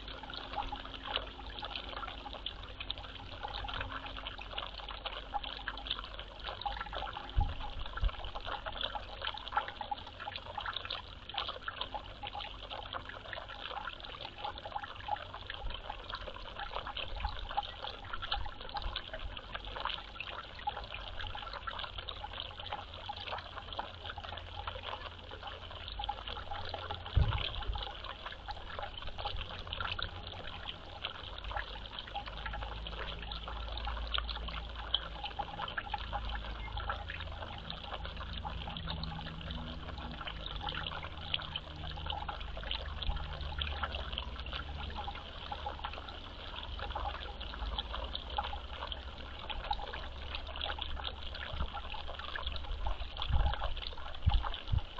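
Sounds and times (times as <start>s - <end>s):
water trickling: 0.0s - 54.9s
low thumps: 27.2s - 27.6s.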